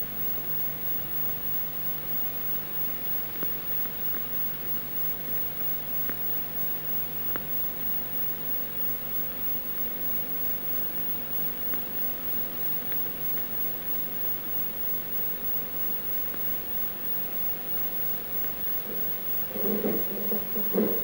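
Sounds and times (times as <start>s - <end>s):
faint clicks: 3.3s - 5.1s, 6.0s - 8.6s, 9.2s - 21.0s
low hum: 17.3s - 21.0s.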